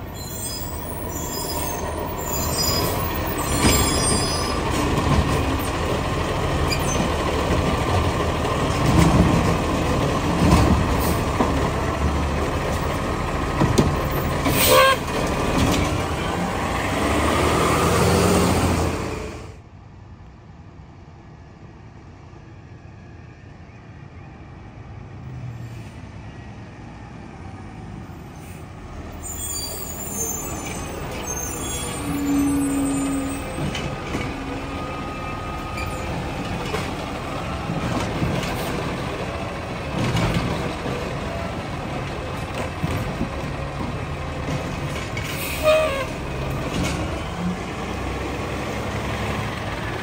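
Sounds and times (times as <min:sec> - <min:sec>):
garbage truck diesel engine: 0:00.0 - 0:19.7, 0:28.6 - 0:50.0
air brakes hissing: 0:45.2 - 0:46.1.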